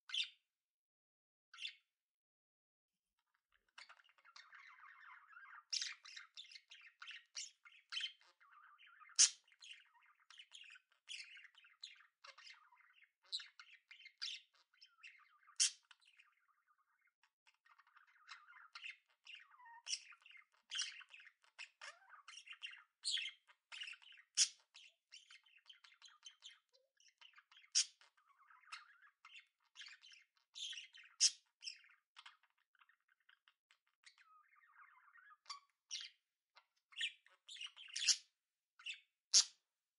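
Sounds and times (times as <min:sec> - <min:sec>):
budgerigars chattering: 0:03.8 - 0:12.7, 0:15.5 - 0:16.1, 0:36.9 - 0:38.2.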